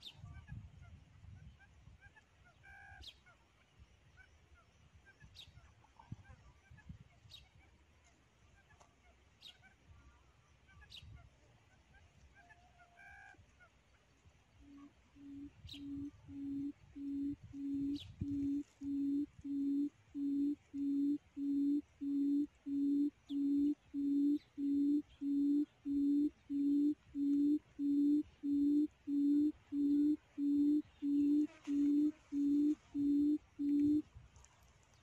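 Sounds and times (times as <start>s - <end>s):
faint high bird chirps: 14.6s - 34.0s
quail call hoots: 14.6s - 34.0s.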